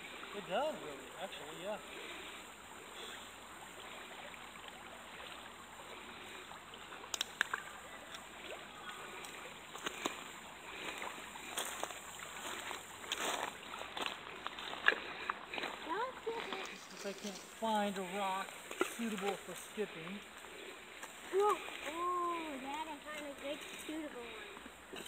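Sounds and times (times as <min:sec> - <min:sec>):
footsteps crunching on gravel: 0:10.8 - 0:16.8.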